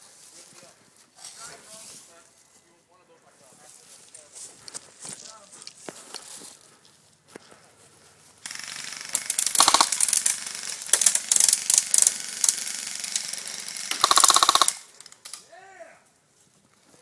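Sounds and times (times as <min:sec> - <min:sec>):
airsoft rifle full-auto bursts: 0:08.4 - 0:15.2.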